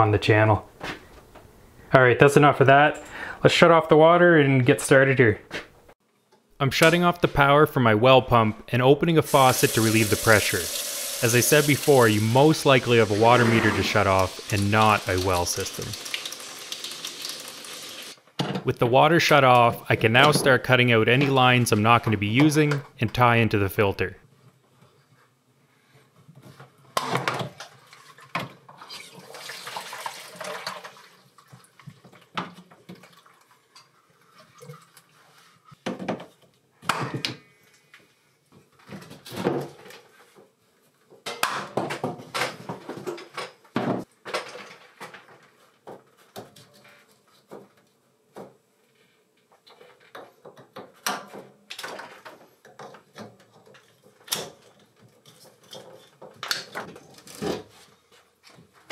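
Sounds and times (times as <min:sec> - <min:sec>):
water rushing into plastic bucket: 0:09.3 - 0:17.8, 0:29.0 - 0:31.9.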